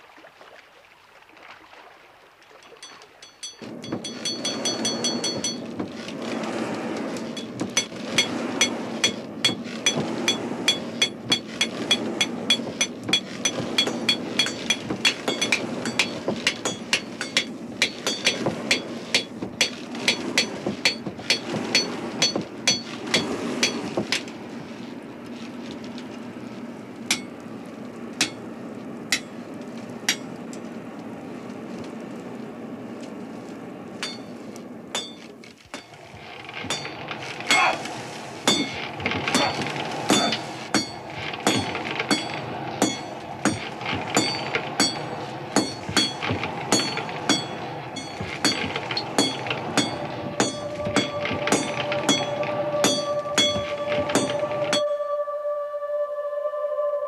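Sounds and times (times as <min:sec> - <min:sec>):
hammer striking metal on anvil: 0:07.8 - 0:23.9, 0:27.1 - 0:27.3, 0:35.0 - 0:35.9, 0:38.5 - 0:54.9.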